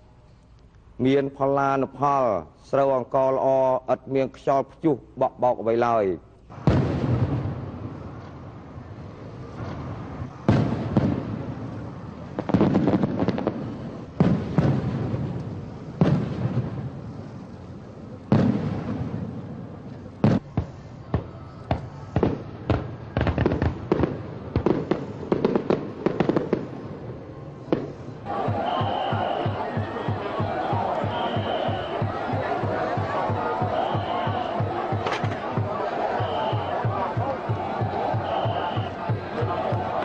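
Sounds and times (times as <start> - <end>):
fireworks crackling pops: 6.4 - 8.7, 9.5 - 26.8, 27.6 - 40.0
fireworks booming: 6.5 - 17.5, 18.3 - 40.0.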